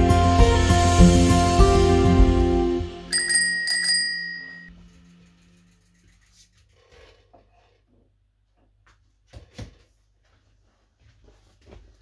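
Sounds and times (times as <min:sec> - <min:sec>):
background music: 0:00.0 - 0:03.8
bicycle bell ringing: 0:03.1 - 0:04.7.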